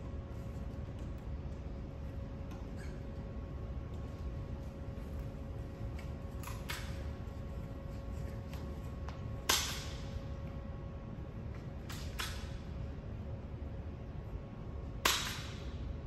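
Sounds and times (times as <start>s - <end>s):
faint steady hum: 0.0s - 16.0s
wiring tool clicks and snaps: 5.9s - 7.1s, 11.8s - 12.6s.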